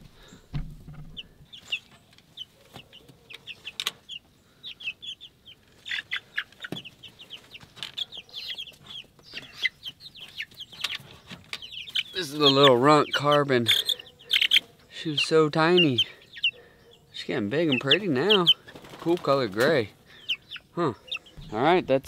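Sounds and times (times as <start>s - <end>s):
chicks peeping: 0.1s - 22.0s
low thud: 0.5s - 1.2s, 21.4s - 21.9s.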